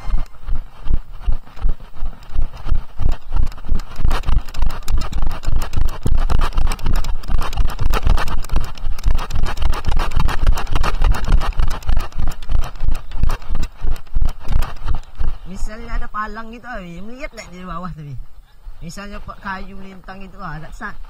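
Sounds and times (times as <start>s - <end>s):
camera jolting and rubbing: 0.0s - 16.3s
horse hoofbeats on grass: 0.0s - 18.1s.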